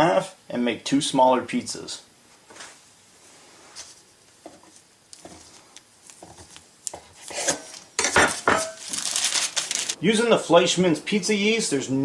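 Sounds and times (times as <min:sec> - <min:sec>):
knife scraping dough: 0:03.8 - 0:08.2
parchment paper crinkling: 0:08.7 - 0:10.0.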